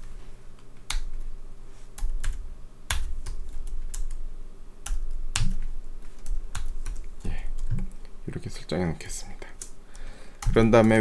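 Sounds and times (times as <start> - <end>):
computer keyboard keystrokes: 2.0 - 4.2, 4.8 - 7.9, 10.4 - 11.0.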